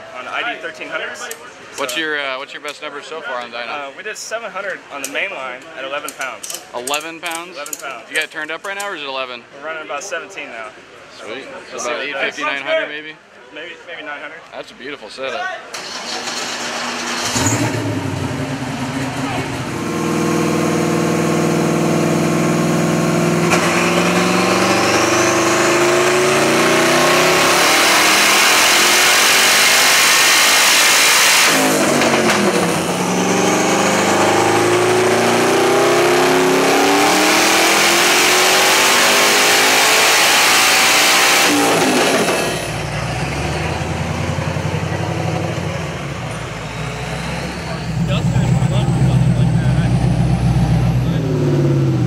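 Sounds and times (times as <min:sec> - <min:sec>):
car engine revving: 0:15.8 - 0:52.0.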